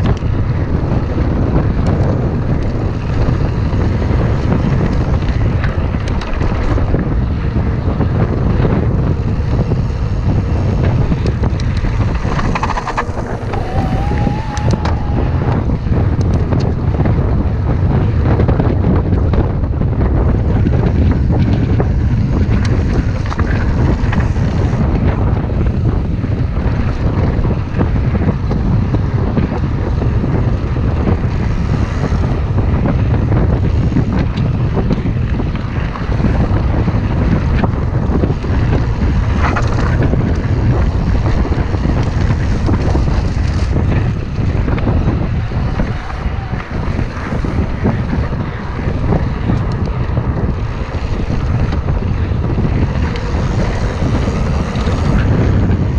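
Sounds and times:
bike clicks: 0.0s - 17.2s, 37.4s - 55.9s
bike tyres rolling on gravel: 0.0s - 55.9s
wind buffeting microphone: 0.0s - 55.9s.

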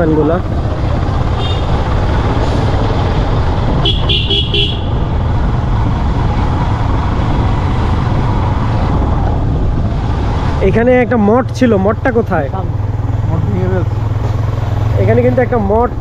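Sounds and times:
motorcycle engine and road noise: 0.0s - 16.0s.

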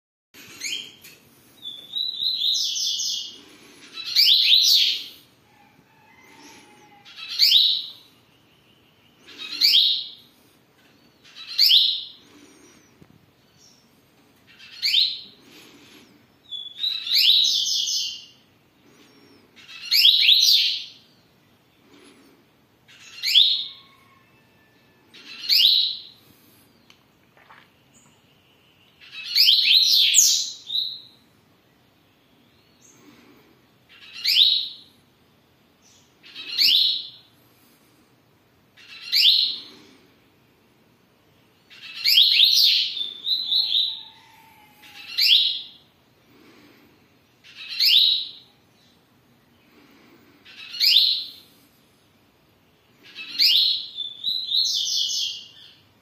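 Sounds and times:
bird singing whistled song: 1.7s - 2.8s, 53.2s - 55.8s.

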